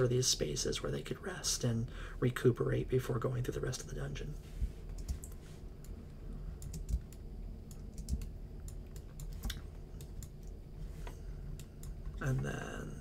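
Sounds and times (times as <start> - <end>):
low steady hum: 0.0 - 13.0
keyboard and mouse clicking: 6.6 - 10.6.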